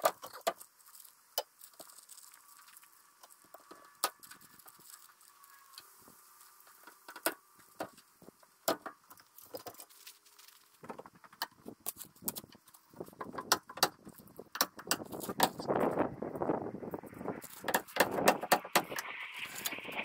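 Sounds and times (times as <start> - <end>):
sharp clicks and knocks: 10.8 - 15.7
thumps and rattles: 10.8 - 15.8.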